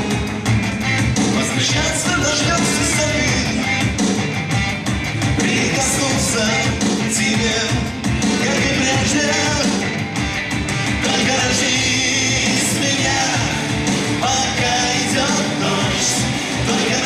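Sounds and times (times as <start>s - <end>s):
rock backing music with drums: 0.0s - 17.0s
man singing into a microphone: 1.3s - 3.8s, 5.4s - 9.9s, 11.0s - 17.0s.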